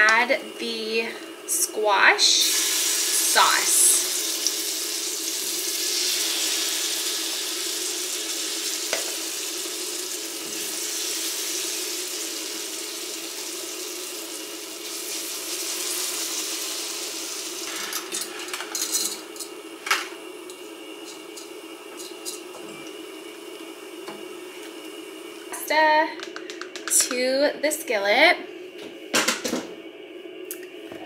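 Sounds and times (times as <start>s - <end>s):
butter sizzling in a skillet: 1.8s - 17.7s.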